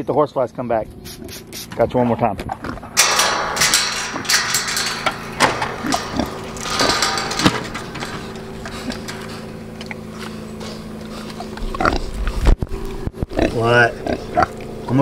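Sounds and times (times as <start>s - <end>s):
pig grunting: 10.1s - 12.4s, 13.3s - 14.6s.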